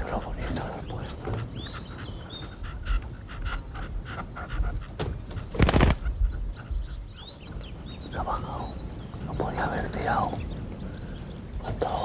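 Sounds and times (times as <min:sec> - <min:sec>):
partridges clucking: 0:00.0 - 0:06.8
flurry of wingbeats: 0:04.9 - 0:06.1.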